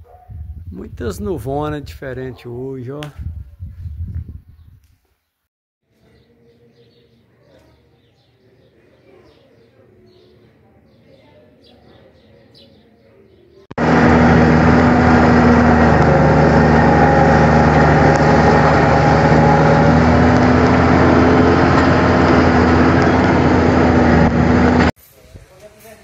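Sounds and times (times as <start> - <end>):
road and wind noise: 3.1 - 4.8, 13.8 - 24.9
low engine drone: 13.8 - 24.9.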